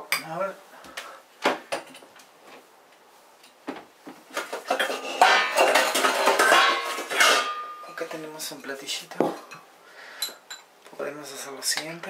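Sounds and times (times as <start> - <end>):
dishes clinking and clattering: 4.4 - 8.2.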